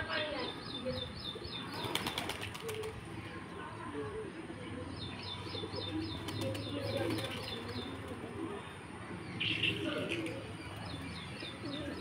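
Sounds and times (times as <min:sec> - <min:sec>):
pigeons cooing: 0:01.5 - 0:03.0, 0:05.5 - 0:08.8.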